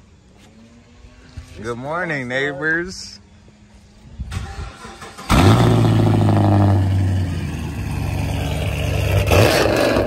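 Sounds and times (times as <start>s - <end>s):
car engine cold start and idle: 4.2s - 10.0s.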